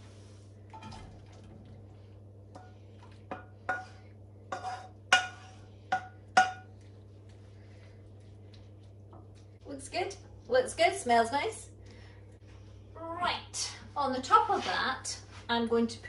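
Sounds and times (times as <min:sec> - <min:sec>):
wooden spoon knocking metal pan: 0:04.6 - 0:06.7.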